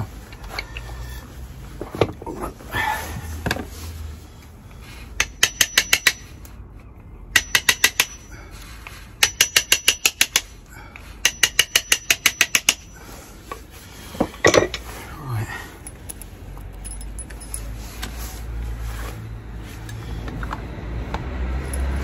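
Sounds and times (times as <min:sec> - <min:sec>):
hammer striking chisel: 0:05.2 - 0:06.2, 0:07.3 - 0:08.3, 0:09.2 - 0:10.5, 0:11.2 - 0:12.9.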